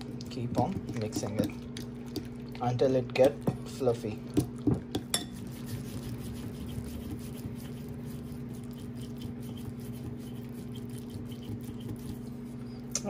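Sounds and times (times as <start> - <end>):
utensil scraping glass bowl: 5.1 - 12.7.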